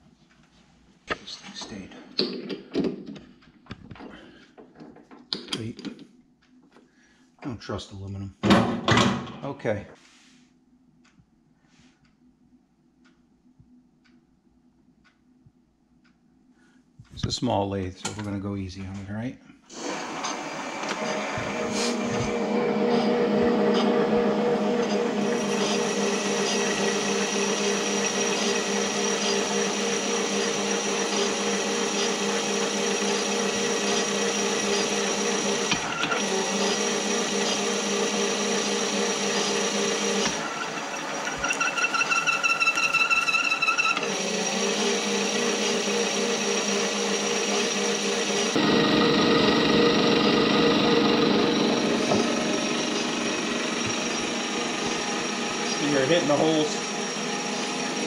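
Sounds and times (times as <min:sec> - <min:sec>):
metal lathe gear whine: 0:20.1 - 0:58.0
fluttering squeal of cutting tool: 0:40.5 - 0:44.0.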